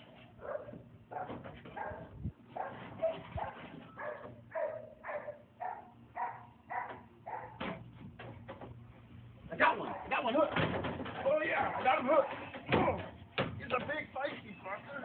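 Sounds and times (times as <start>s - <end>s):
dog-like yaps: 0.4s - 7.6s.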